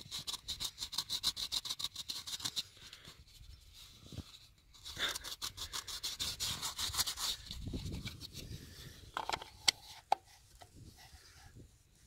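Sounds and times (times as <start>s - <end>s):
gloved hands rubbing plastic: 0.0s - 12.0s.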